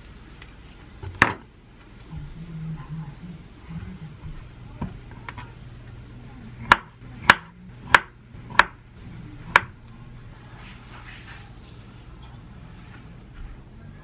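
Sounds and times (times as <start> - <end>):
knife chopping on wooden board: 6.6 - 8.8, 9.4 - 9.8.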